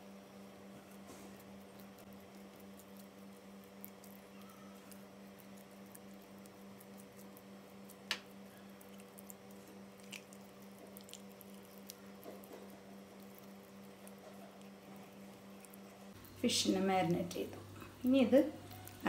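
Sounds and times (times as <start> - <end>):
faint steady hum: 0.0 - 19.0
hands squishing paste into fish: 2.5 - 15.8.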